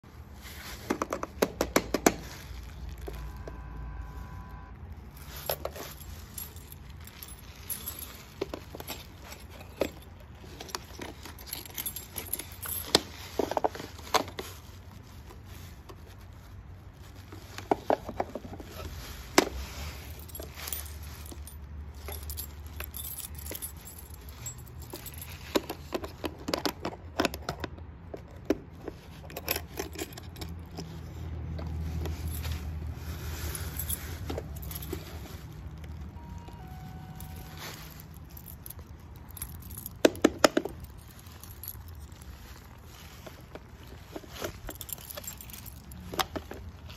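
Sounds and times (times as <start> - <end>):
keys jangling: 5.1 - 15.0, 17.3 - 46.9
electronic doorbell chime: 36.2 - 37.6.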